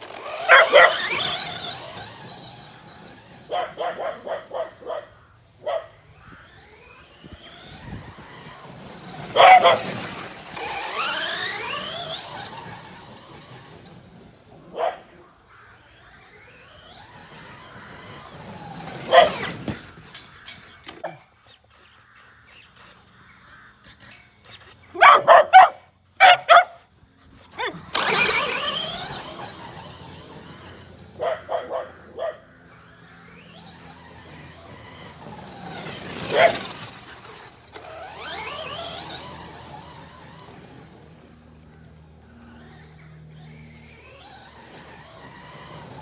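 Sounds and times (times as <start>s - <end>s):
electric motor whining: 0.0s - 46.0s
dogs barking: 0.2s - 2.0s, 3.2s - 6.0s, 9.2s - 12.6s, 14.6s - 15.9s, 18.9s - 19.6s, 24.9s - 29.4s, 30.4s - 33.1s, 36.0s - 37.3s.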